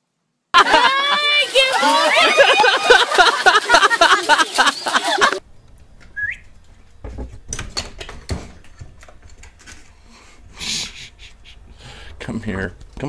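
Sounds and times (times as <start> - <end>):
short rising whistle: 6.1 - 6.4.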